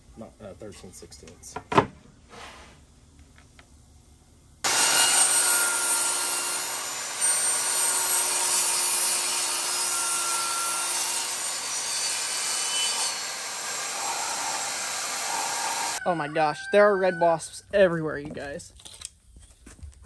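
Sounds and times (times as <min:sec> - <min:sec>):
table saw ripping wood: 0:04.7 - 0:16.0.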